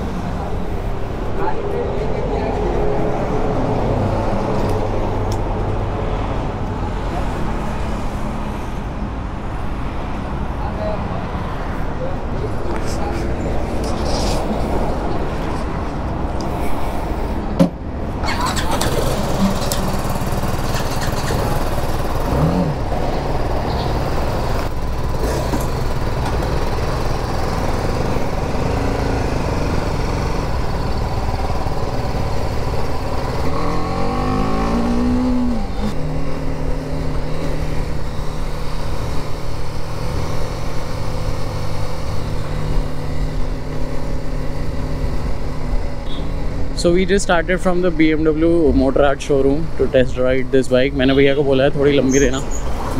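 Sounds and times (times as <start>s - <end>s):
motorcycle engine running: 18.2s - 46.7s.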